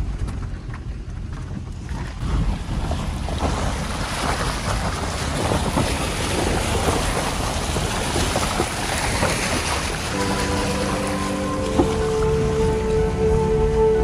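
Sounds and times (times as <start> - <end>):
wind buffeting microphone: 0.0 - 14.0
river rushing: 3.0 - 14.0.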